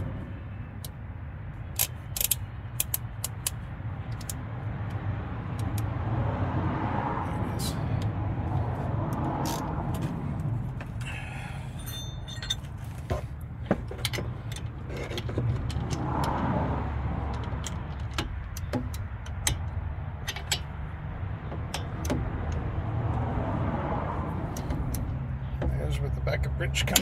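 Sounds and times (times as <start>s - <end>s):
steady low rumble: 0.0s - 25.7s
metallic clicks of hand tools: 1.7s - 5.9s.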